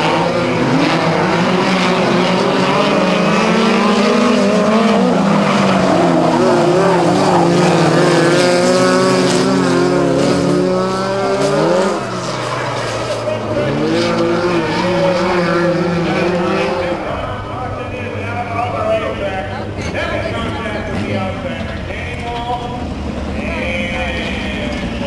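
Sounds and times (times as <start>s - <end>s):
race car engines revving: 0.0s - 25.0s.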